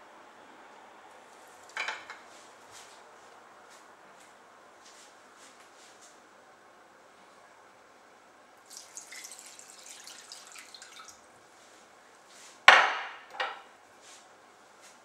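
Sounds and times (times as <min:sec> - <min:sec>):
liquid splashing onto chicken: 0:08.6 - 0:11.2.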